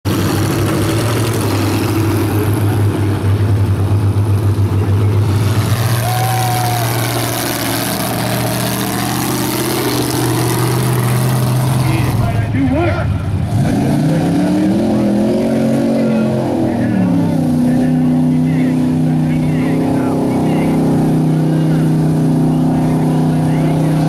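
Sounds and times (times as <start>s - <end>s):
truck engine idling: 0.0s - 14.7s.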